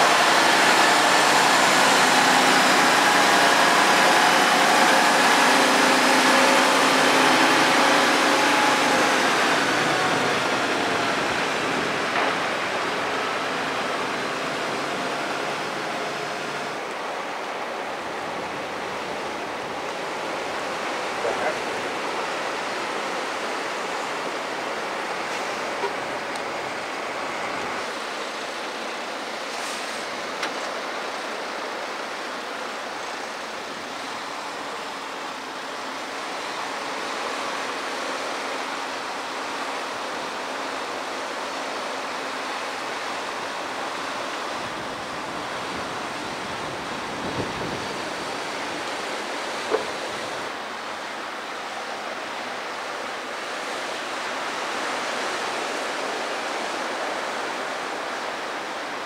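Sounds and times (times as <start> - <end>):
faint truck engine running: 0.0 - 27.8
small waves breaking on beach: 0.0 - 59.0.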